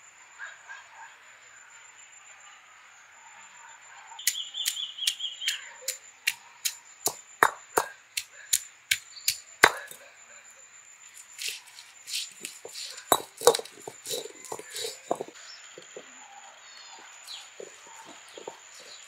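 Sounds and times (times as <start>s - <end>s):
stone roller pounding on slab: 7.4s - 7.9s, 9.6s - 10.0s, 11.4s - 15.4s, 17.6s - 19.0s.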